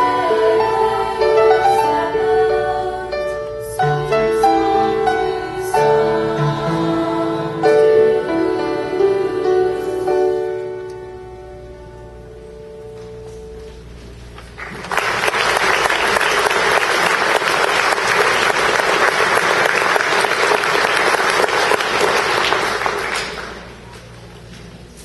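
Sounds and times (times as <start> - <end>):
choir holding a note: 0.0 - 13.2
audience applauding: 14.4 - 24.0.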